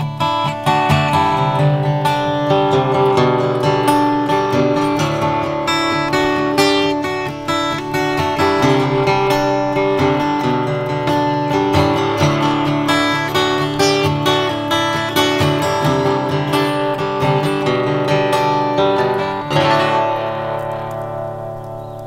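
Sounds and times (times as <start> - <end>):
acoustic guitar playing: 0.0 - 22.0.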